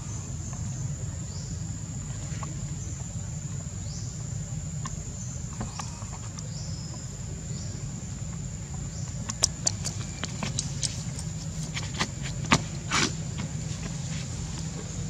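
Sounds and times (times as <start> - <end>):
low background rumble: 0.0 - 15.0
sharp clicks: 9.2 - 11.3.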